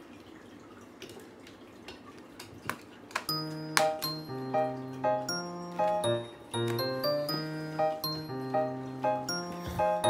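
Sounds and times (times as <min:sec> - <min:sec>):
light melody over bass: 0:03.3 - 0:10.0.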